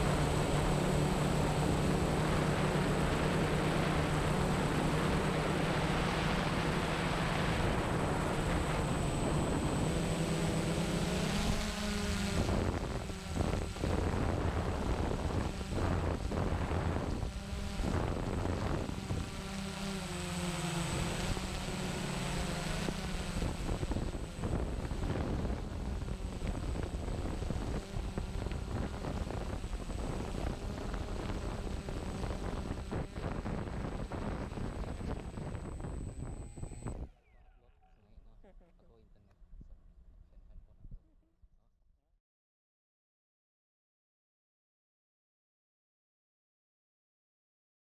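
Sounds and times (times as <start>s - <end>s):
wind buffeting microphone: 0.0s - 19.4s, 22.8s - 37.1s
drone propellers humming: 0.0s - 37.6s.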